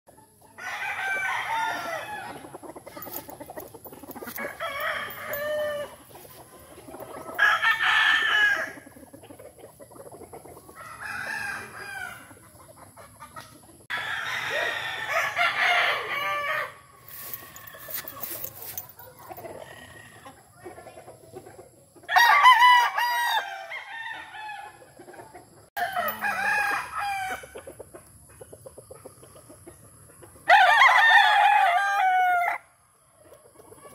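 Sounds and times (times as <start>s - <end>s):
roosters crowing: 0.4s - 3.3s, 4.1s - 8.9s, 10.7s - 12.4s, 13.9s - 18.9s, 22.1s - 25.0s, 25.8s - 27.7s, 30.4s - 32.7s.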